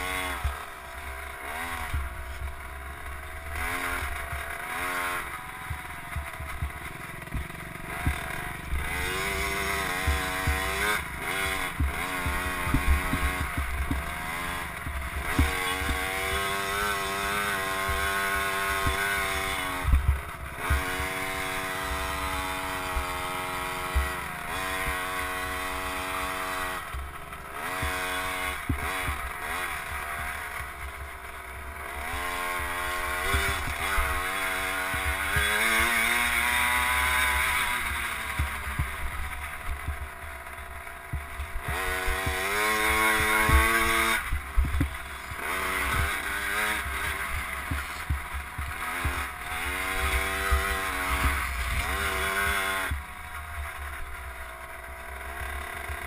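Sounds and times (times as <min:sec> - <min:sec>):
dirt bike engine revving: 0:00.0 - 0:56.0
knocks from bumps: 0:05.7 - 0:16.6, 0:41.1 - 0:49.3.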